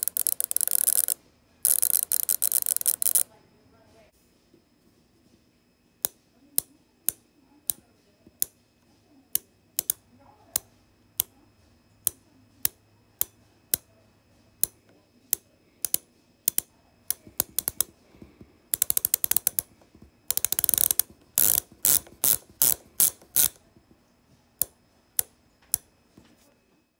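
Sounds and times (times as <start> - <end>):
bicycle hub ratchet clicking: 0.0 - 3.2, 15.8 - 17.9, 18.7 - 23.6.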